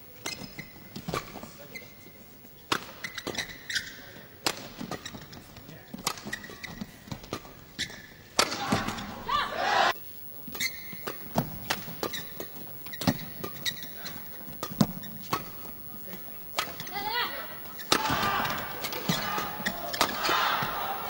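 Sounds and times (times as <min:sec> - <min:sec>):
shoes squeaking on court: 0:00.0 - 0:09.1, 0:10.1 - 0:21.0
crowd shouting and cheering: 0:08.4 - 0:10.0, 0:17.9 - 0:21.0
badminton rackets hitting shuttlecock: 0:17.7 - 0:21.0.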